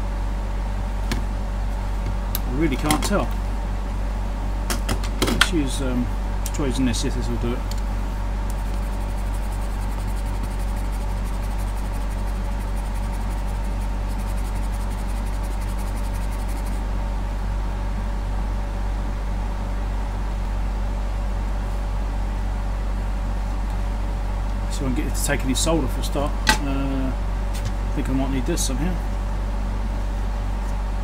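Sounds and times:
low hum with hiss: 0:00.0 - 0:31.0
abrasive tool scratching: 0:08.5 - 0:16.8.

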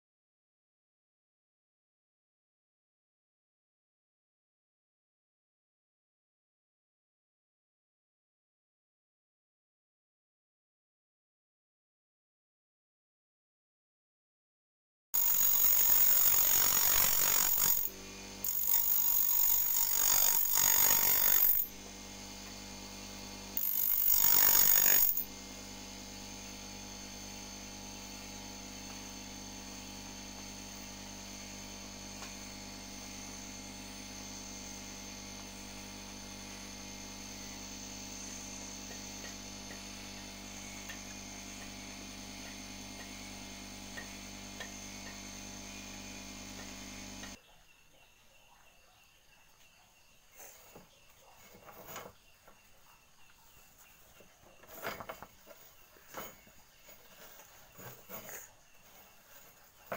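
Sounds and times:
grinder humming unloaded: 0:15.2 - 0:47.4, 0:54.5 - 0:59.9
grinder wheel grinding saw blade: 0:15.2 - 0:47.4.

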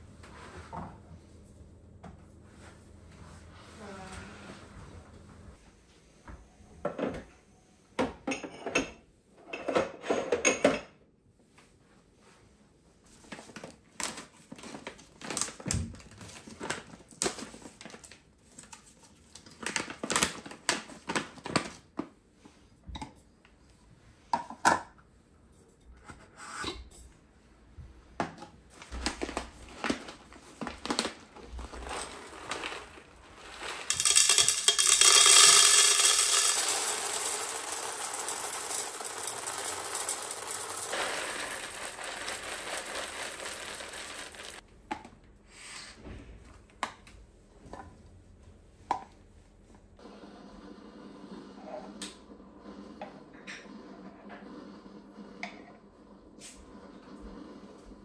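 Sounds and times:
coffee bag crinkling: 0:29.1 - 0:44.6
coffee beans pouring into canister: 0:31.6 - 0:44.6.

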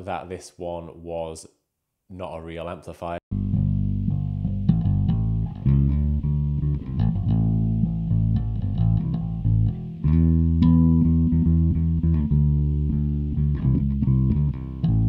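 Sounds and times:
electric bass guitar plucked: 0:03.3 - 0:15.0.

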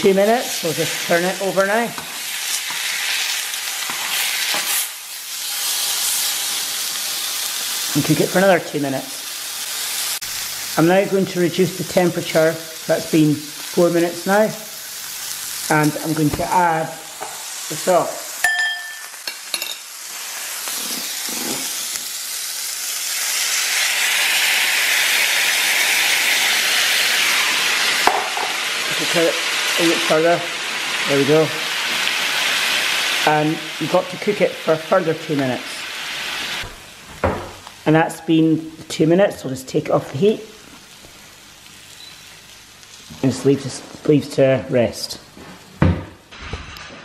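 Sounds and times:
steak sizzling in a frying pan: 0:00.0 - 0:38.2, 0:40.0 - 0:43.6
short beep: 0:42.0 - 0:42.2.

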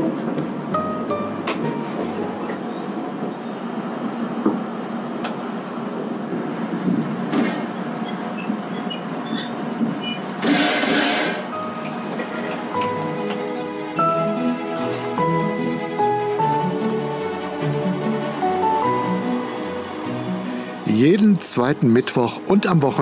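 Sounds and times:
railcar wheels rumbling on rails: 0:00.0 - 0:23.0
high wheel squeal: 0:07.4 - 0:11.5.

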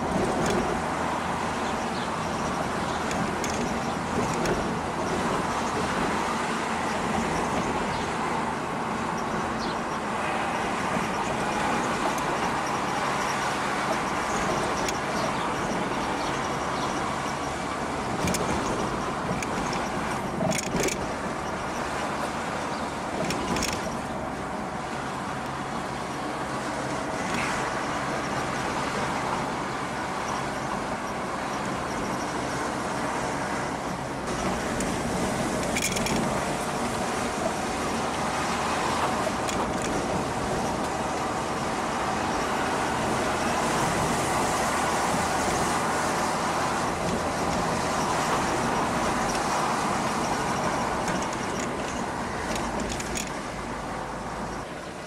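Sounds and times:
car engine and tyre noise: 0:00.0 - 0:55.0.

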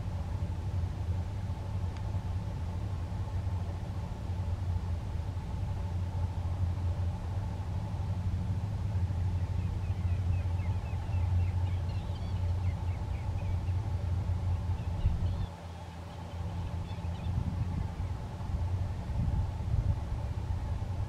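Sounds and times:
low rumble with faint hum: 0:00.0 - 0:21.0
high chirping bird calls: 0:09.4 - 0:13.8.

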